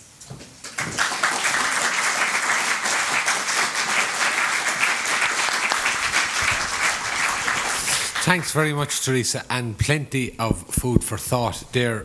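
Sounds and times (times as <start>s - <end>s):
audience applauding: 0.7s - 8.8s.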